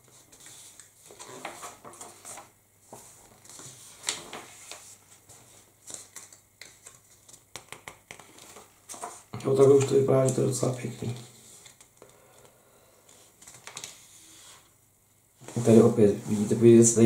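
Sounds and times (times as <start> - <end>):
paper pages rustling: 0.0 - 12.0, 13.1 - 14.3.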